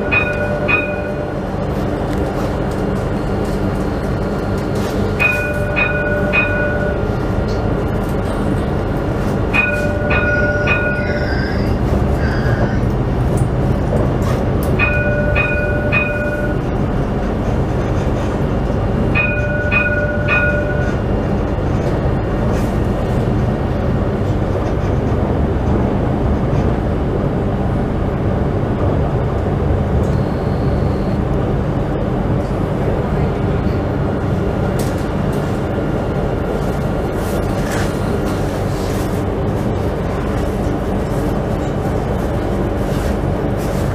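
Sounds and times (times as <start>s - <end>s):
tram warning chime: 0.0s - 2.0s, 3.6s - 13.6s, 14.7s - 17.2s, 19.0s - 21.4s, 30.0s - 31.8s
tram rumble and hum: 0.0s - 43.9s.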